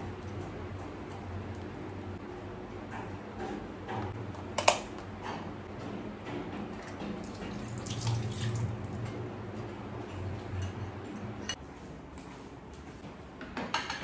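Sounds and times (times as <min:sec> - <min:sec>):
tap water running into sink: 0:07.2 - 0:09.0.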